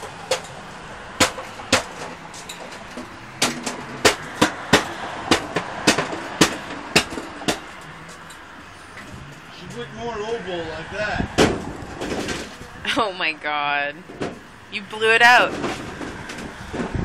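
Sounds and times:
sharp knocks: 1.2s - 7.7s, 11.4s - 12.5s.

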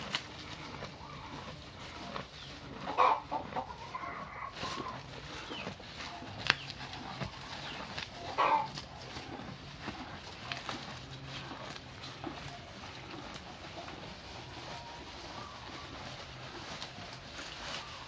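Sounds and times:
cattle calling: 0.0s - 18.0s
cattle munching grass: 0.0s - 18.0s.

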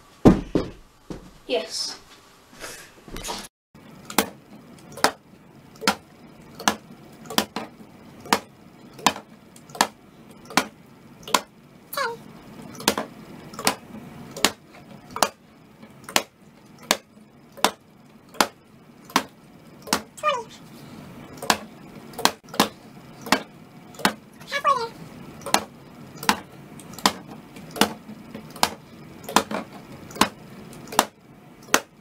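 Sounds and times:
plastic bottle thudding on wood: 0.2s - 1.3s.

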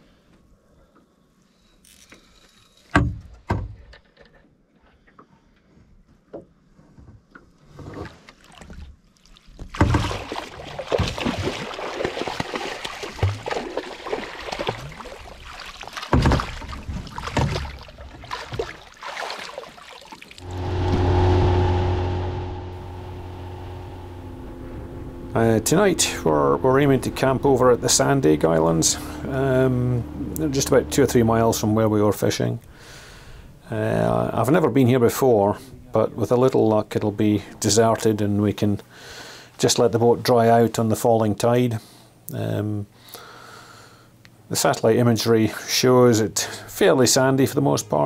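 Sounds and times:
water splashing: 8.1s - 32.6s
boat engine humming: 10.5s - 34.5s
knocks on boat: 16.1s - 17.7s
rushing clattering noise: 20.4s - 32.2s.

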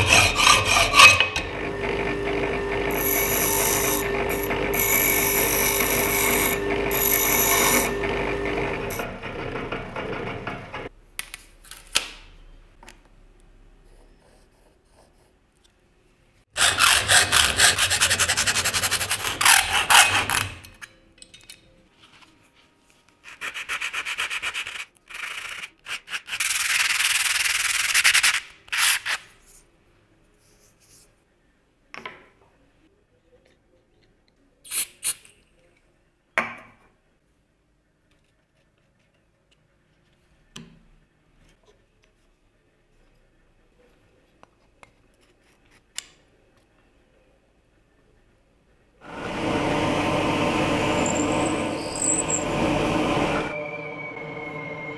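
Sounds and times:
hand rubbing abrasive surface: 51.0s - 52.6s.

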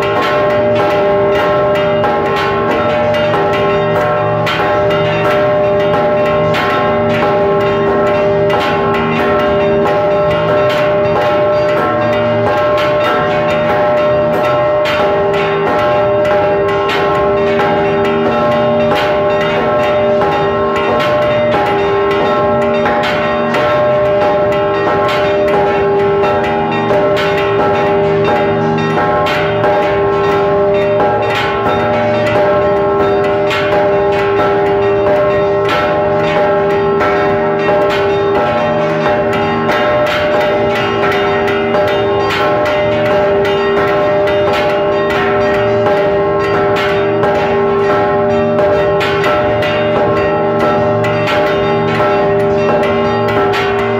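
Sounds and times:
church bells ringing together: 0.0s - 53.9s
large bell struck rapidly: 0.0s - 53.9s.

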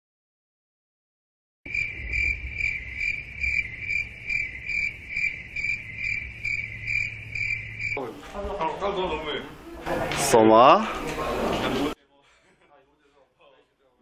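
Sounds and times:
cricket chirps: 1.7s - 8.0s
steady low hum: 1.7s - 8.0s.

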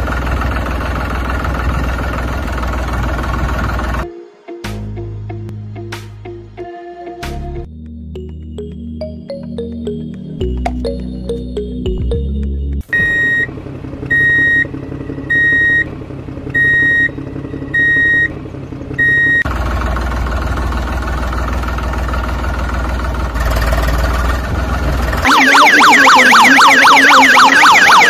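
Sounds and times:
truck engine idling: 0.0s - 4.0s, 8.8s - 28.0s
truck reversing alarm beeping: 8.2s - 18.4s, 19.0s - 19.5s, 25.2s - 28.0s.

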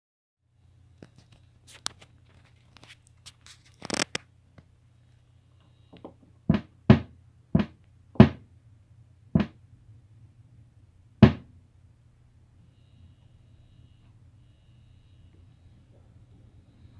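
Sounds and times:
steady low hum: 4.2s - 16.9s.

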